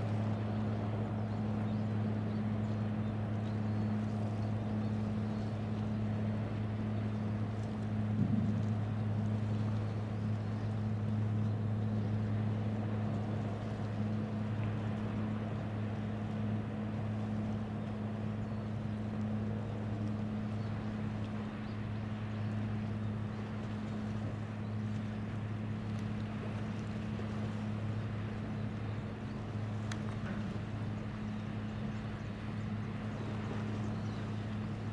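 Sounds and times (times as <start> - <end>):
ship diesel engines droning: 0.0 - 34.9.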